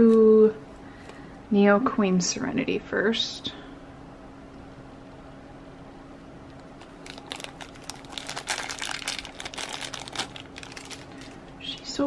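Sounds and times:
plastic bag crinkling: 0:06.6 - 0:12.0.

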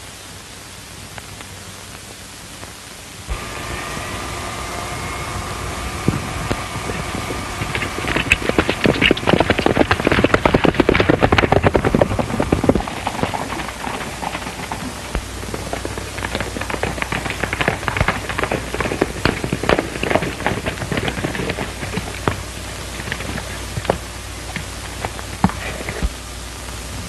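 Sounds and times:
old film soundtrack hiss: 0:00.0 - 0:27.0
rapid clatter of sharp knocks: 0:06.9 - 0:26.0.

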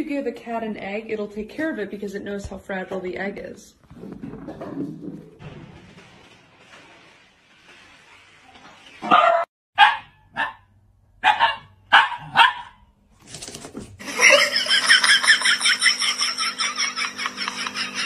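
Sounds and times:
dog barking: 0:09.0 - 0:12.8.

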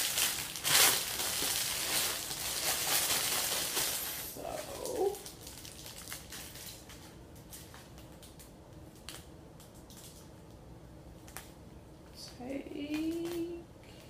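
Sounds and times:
plastic bag crinkling: 0:00.0 - 0:09.3.

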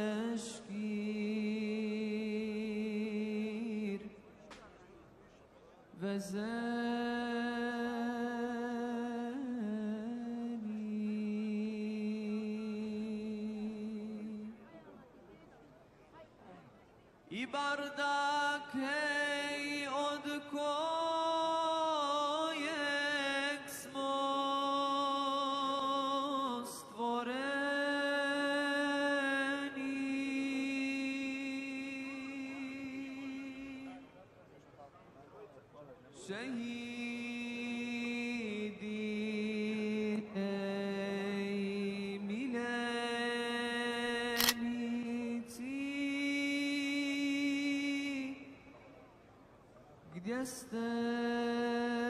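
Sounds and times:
person chanting: 0:00.0 - 0:04.1, 0:06.0 - 0:14.6, 0:17.4 - 0:34.0, 0:36.3 - 0:48.6
sharp click: 0:44.4 - 0:44.6.

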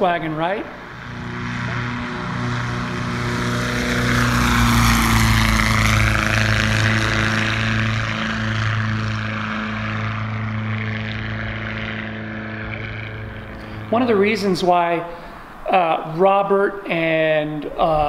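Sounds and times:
propeller plane passing overhead: 0:00.0 - 0:18.0.

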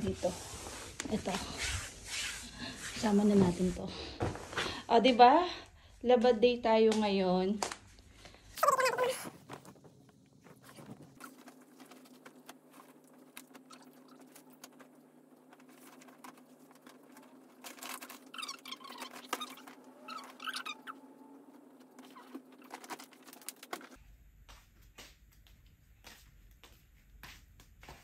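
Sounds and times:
clothes and bags rustling: 0:09.0 - 0:20.7, 0:21.7 - 0:24.0
short squeaky sounds: 0:17.8 - 0:21.2.

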